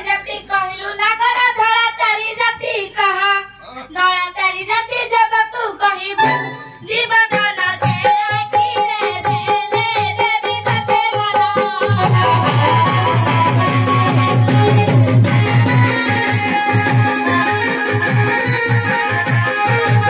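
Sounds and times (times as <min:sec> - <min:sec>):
instrumental accompaniment: 0:06.1 - 0:20.0
rhythmic drumming: 0:06.2 - 0:20.0.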